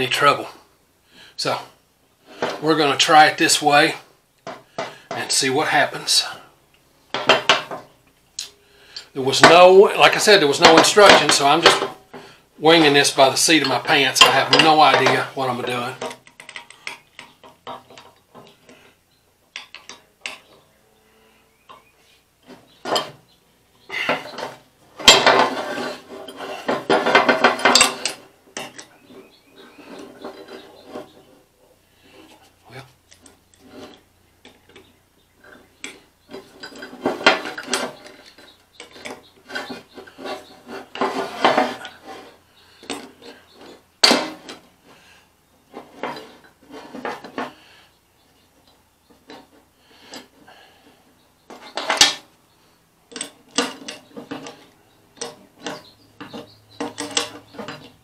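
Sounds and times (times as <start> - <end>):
metal parts clinking and clanking: 12.7 - 18.8, 19.5 - 20.6, 22.5 - 23.2, 24.0 - 31.1, 33.1 - 44.7, 51.5 - 52.3, 53.1 - 58.0.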